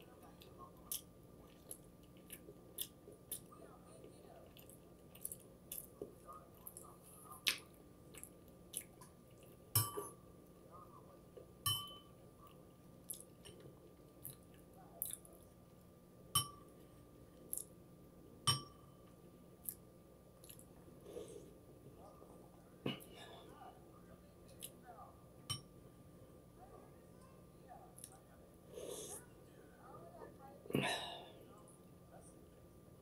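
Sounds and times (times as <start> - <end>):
chewing: 0.2 - 10.1, 12.4 - 15.5, 20.4 - 21.4.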